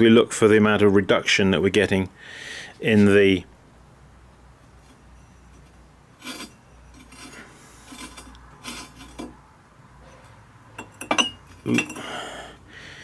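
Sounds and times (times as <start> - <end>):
stoneware pots scraping together: 4.8 - 9.4.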